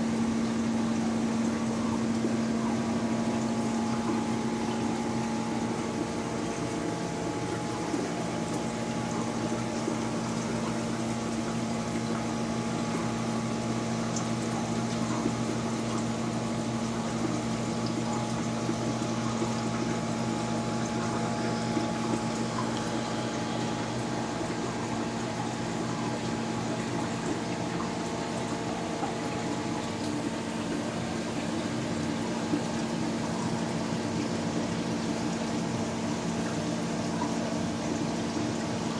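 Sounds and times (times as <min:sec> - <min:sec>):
trickling water: 0:00.0 - 0:38.9
water pump humming: 0:00.0 - 0:38.9.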